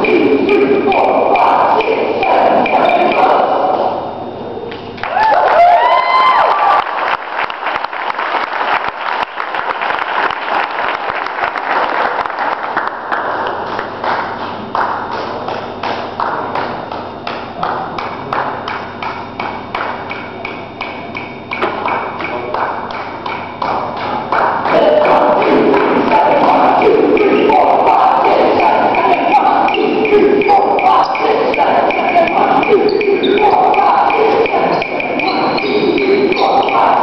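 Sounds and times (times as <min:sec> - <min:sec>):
pitched tones: 0:00.0 - 0:04.6, 0:24.6 - 0:37.0
people clapping and tapping: 0:06.4 - 0:20.3, 0:20.9 - 0:29.8.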